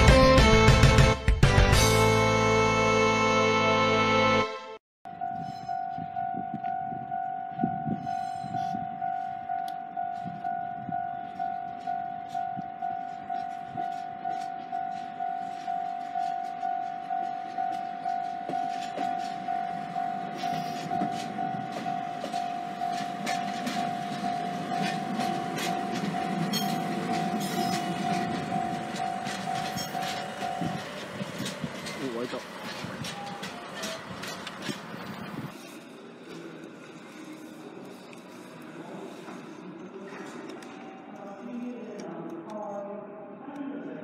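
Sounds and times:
level-crossing warning bell: 5.1s - 34.5s
diesel locomotive engine rumble: 5.1s - 43.4s
train wheel clicks: 11.2s - 35.4s.

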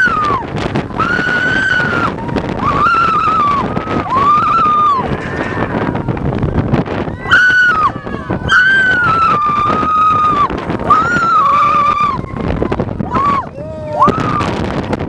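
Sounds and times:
riders screaming: 0.0s - 6.3s, 7.0s - 12.4s
coaster train rumbling on track: 0.0s - 15.0s
wind on microphone: 0.0s - 15.0s.

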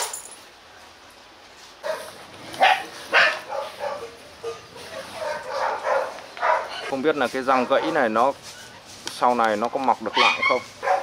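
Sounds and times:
dog barking and yipping: 1.8s - 8.7s, 10.0s - 11.0s.

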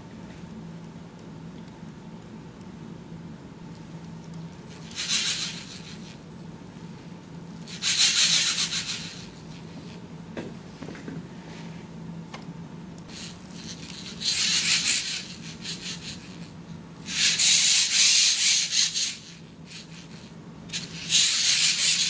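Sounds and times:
steady low hum: 0.0s - 22.0s
motor whirring and gear chatter: 4.2s - 6.2s, 7.6s - 10.0s, 13.1s - 22.0s.

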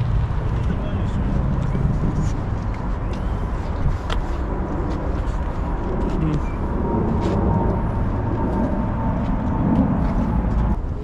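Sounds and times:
low outdoor rumble: 0.0s - 11.0s.

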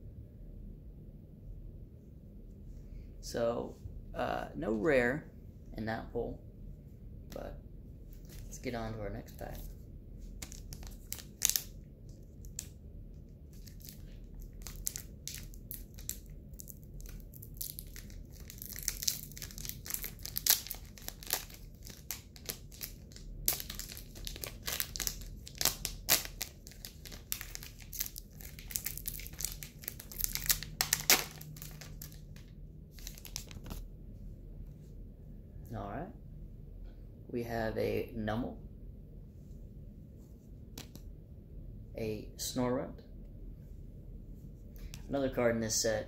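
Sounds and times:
foil wrapper crinkling and tearing: 10.4s - 12.7s, 13.5s - 33.8s.

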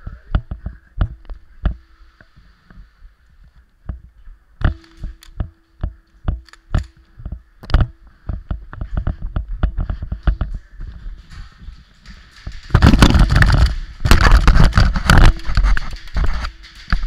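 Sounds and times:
faint steady hum: 0.0s - 17.0s
camera knocking and rattling: 4.6s - 17.0s.

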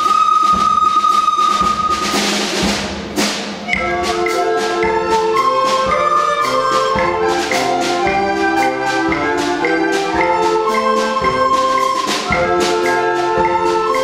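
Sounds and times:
percussion beat: 0.0s - 14.0s
recorder ensemble: 0.0s - 14.0s
bassoons: 3.7s - 14.0s.

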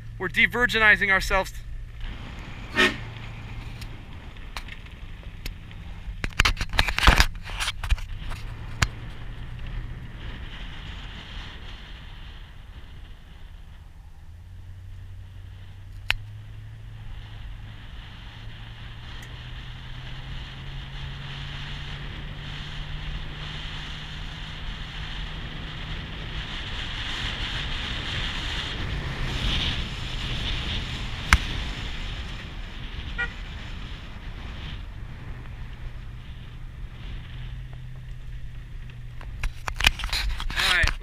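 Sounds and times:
car engine running: 0.0s - 41.0s
wind and road noise: 0.0s - 41.0s.

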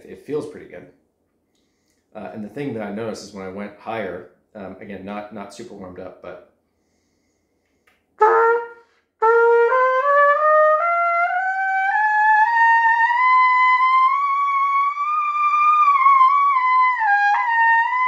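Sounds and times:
trumpet playing rising scale: 8.2s - 18.0s.

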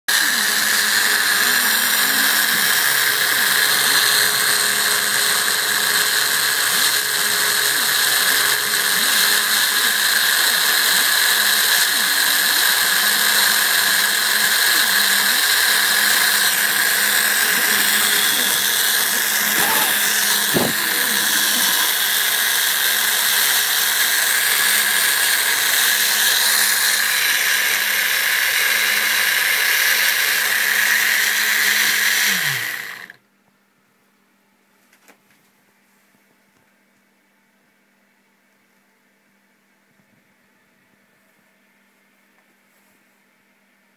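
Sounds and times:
router spindle high whine: 0.1s - 33.2s.

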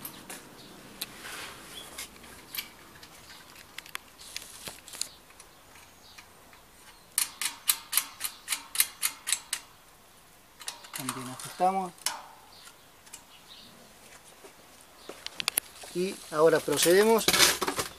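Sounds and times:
spanner clicking on bolt: 5.3s - 9.7s, 10.6s - 13.3s.

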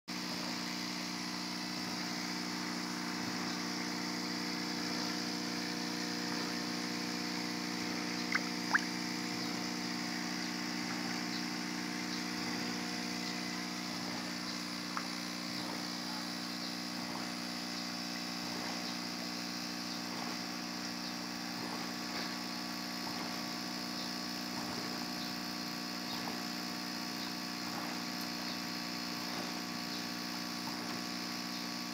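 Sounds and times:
electric pump humming: 0.1s - 31.9s
water bubbling and churning: 8.2s - 9.0s.

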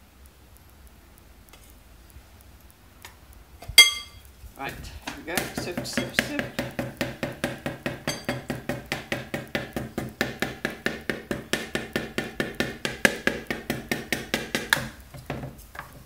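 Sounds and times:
metal sifter knocking on plastic bowl: 5.0s - 14.9s.

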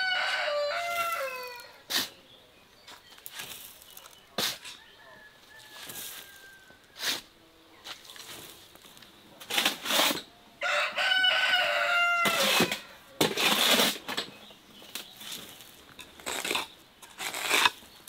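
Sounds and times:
rooster crowing: 0.0s - 1.8s, 4.8s - 7.0s, 10.6s - 13.0s
tool scraping soil on brick: 0.7s - 2.2s, 2.8s - 4.9s, 5.6s - 10.3s, 12.2s - 18.0s.

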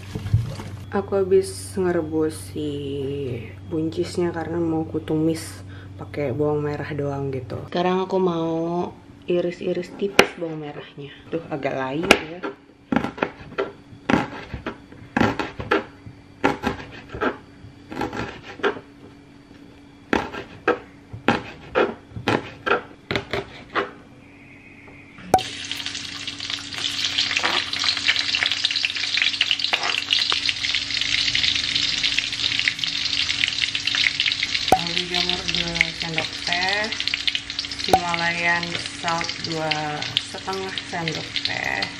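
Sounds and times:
food sizzling in hot oil: 25.4s - 41.9s.

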